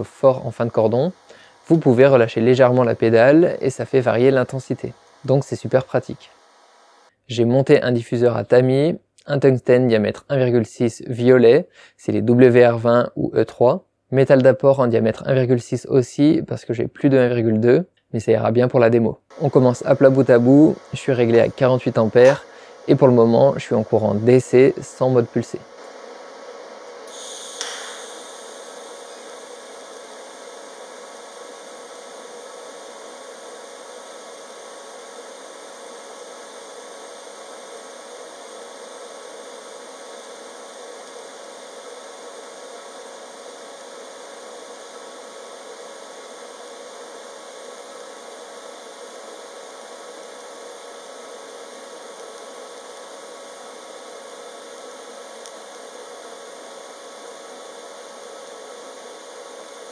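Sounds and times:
welding arc hissing and buzzing: 0:00.0 - 0:07.2, 0:19.3 - 0:59.9.

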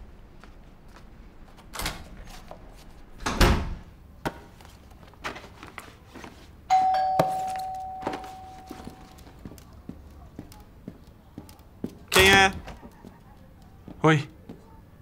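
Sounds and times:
doorbell chime: 0:06.7 - 0:09.3.

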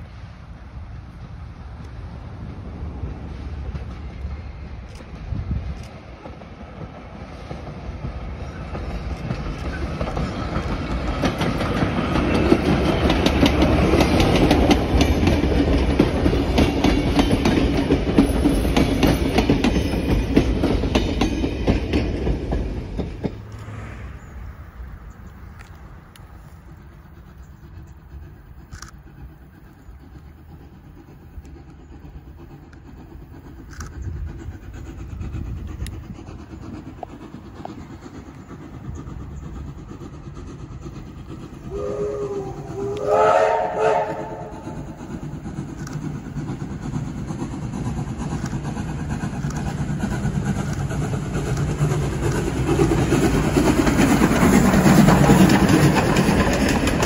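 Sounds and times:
steam locomotive exhaust: 0:00.0 - 0:57.0
train wheels: 0:00.0 - 0:57.0
steam locomotive whistle: 0:41.7 - 0:45.0.

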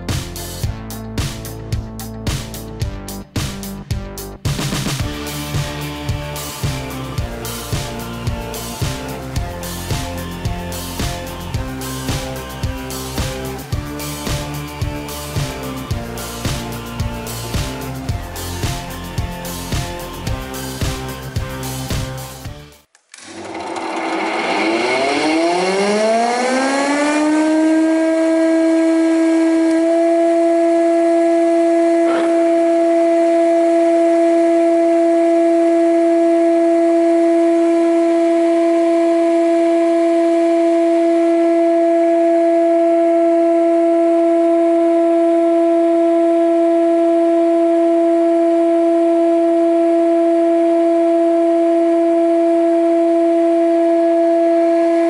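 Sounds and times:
planer motor whining: 0:23.2 - 0:33.3.

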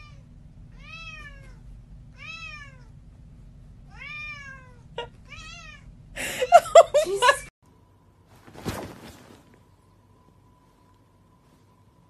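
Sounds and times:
cat meowing: 0:00.0 - 0:01.6, 0:02.2 - 0:02.9, 0:03.9 - 0:05.9.

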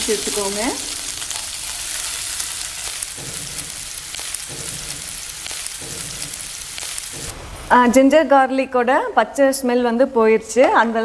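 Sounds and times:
sizzling in hot oil: 0:00.0 - 0:07.7.

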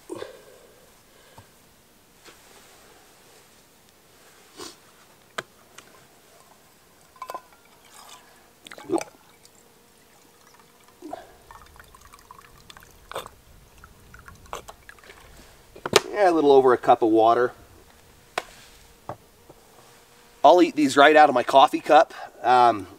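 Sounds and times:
water poured from plastic bottle: 0:10.1 - 0:15.3.

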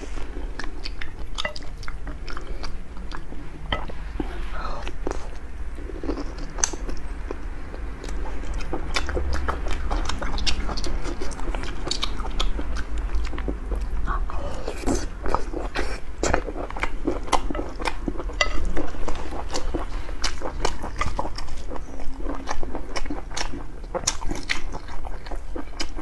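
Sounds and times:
wet chewing and mouth smacks: 0:06.0 - 0:14.0, 0:14.8 - 0:26.0.

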